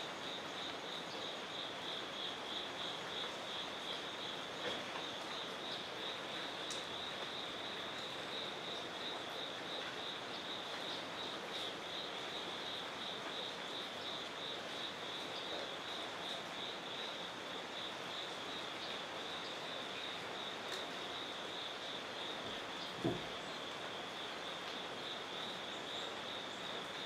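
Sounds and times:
outdoor background hiss: 0.0s - 27.0s
faint ticks: 6.6s - 7.3s.

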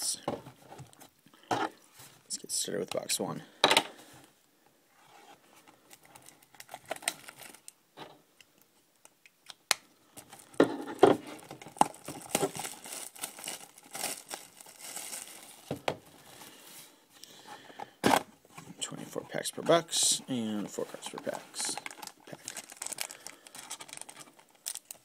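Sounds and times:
plastic wrap tearing and crinkling: 6.0s - 7.7s, 11.3s - 15.8s, 21.7s - 25.0s.

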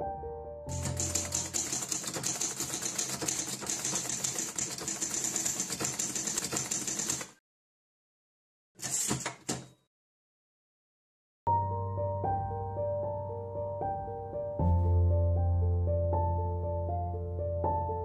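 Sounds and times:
typewriter keystrokes clacking: 0.7s - 7.4s.

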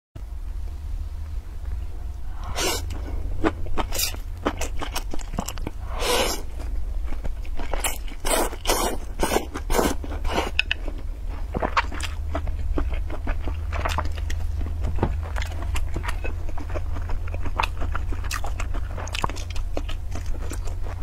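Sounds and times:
steady low hum: 0.2s - 21.0s
slurping noodles: 2.4s - 3.2s, 5.8s - 6.6s, 7.8s - 10.7s
wet chewing: 2.4s - 21.0s.

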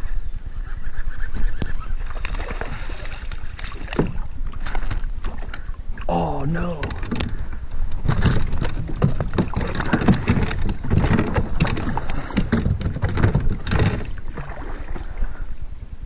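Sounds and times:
kayak paddle splashing water: 2.0s - 15.5s
paddle and boat knocking: 2.2s - 15.0s.

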